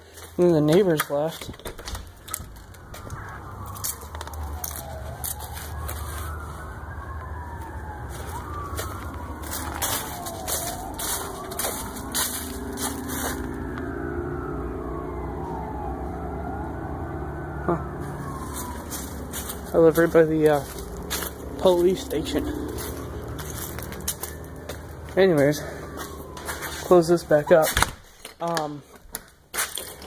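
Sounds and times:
sirens wailing: 0.0 - 28.8.

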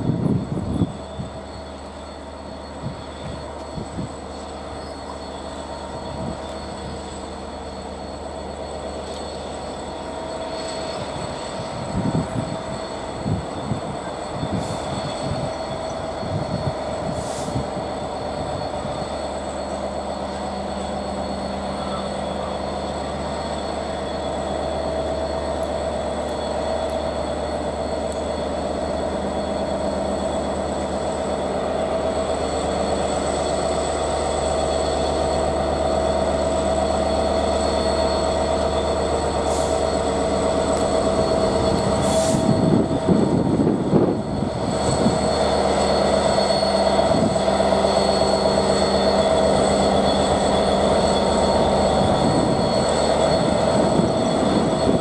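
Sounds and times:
train hum and whine: 0.0 - 55.0.

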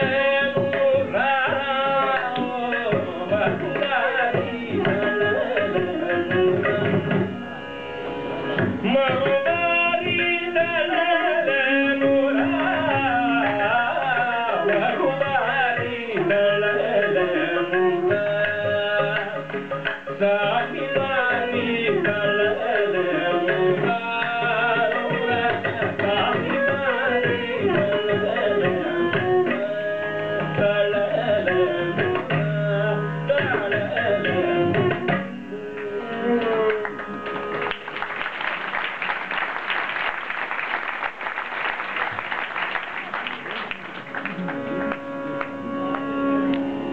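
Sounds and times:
violin: 0.0 - 40.0, 41.7 - 46.9
person singing: 8.8 - 19.6
hand drum playing: 11.7 - 16.6
audience applause: 36.7 - 46.6.

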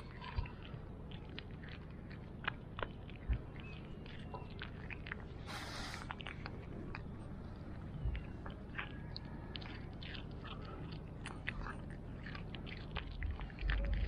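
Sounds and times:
cat chewing meat: 0.0 - 14.0
brief hiss: 5.5 - 6.1.

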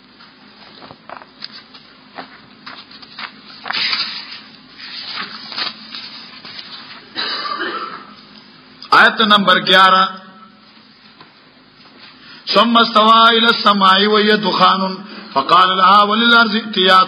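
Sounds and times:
book pages rustling: 0.6 - 7.1.

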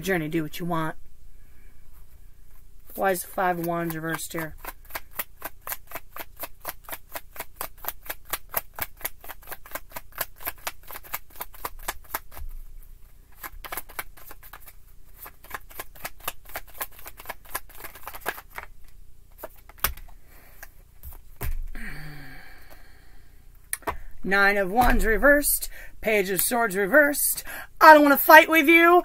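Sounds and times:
cards being shuffled by hand: 2.5 - 21.8.

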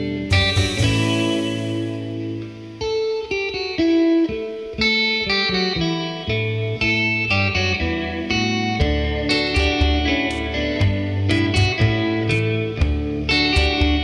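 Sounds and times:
heavy bass part: 0.0 - 2.6
plucked guitar notes: 0.0 - 14.0.

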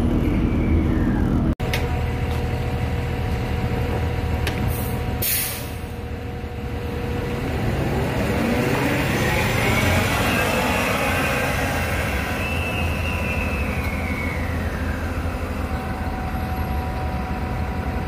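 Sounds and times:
bus engine idling and accelerating: 0.0 - 18.0
air brake hiss: 4.7 - 5.9.

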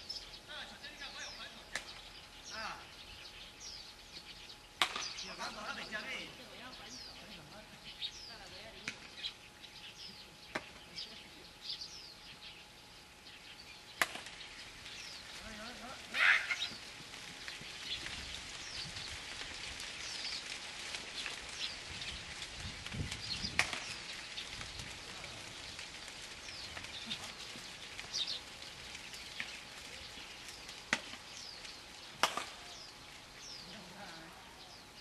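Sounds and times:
small birds chirping: 0.0 - 35.0
bat hitting ball: 32.2 - 32.6.

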